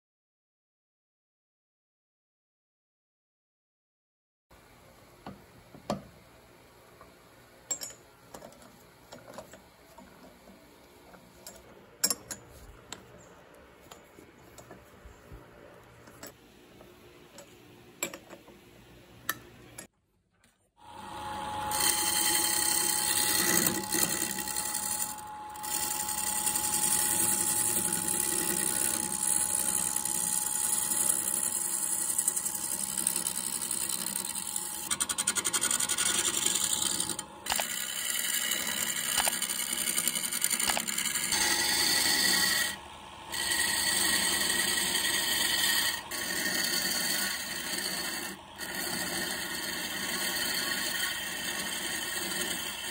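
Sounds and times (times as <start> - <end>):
chisel scraping spinning wood: 21.0 - 52.9.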